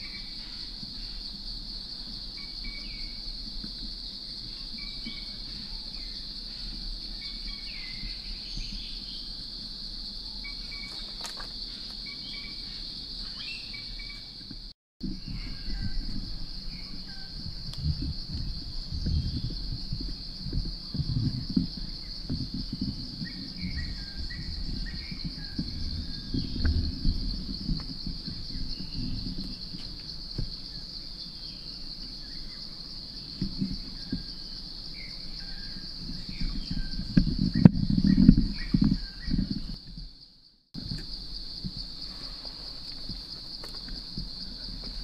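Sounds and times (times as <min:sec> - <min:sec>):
insects droning: 0:00.0 - 0:45.0
bird chirps: 0:10.3 - 0:14.4
low rustles and thumps: 0:14.4 - 0:32.2, 0:32.8 - 0:40.2.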